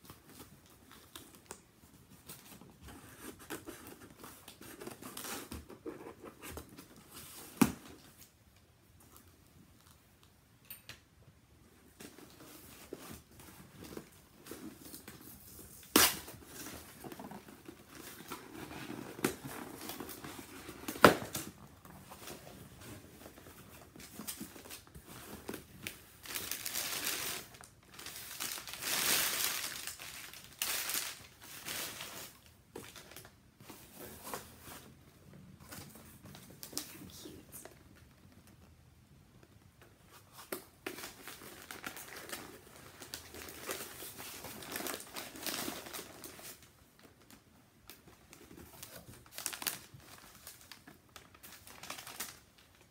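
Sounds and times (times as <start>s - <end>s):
packing paper crinkling: 12.3s - 33.4s, 40.4s - 52.9s.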